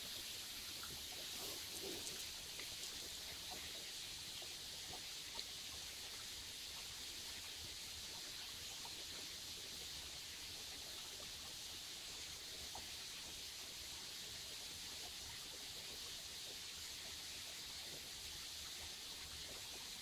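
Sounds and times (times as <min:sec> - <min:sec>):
stream running over stones: 0:00.0 - 0:20.0
small ticks: 0:00.6 - 0:06.2.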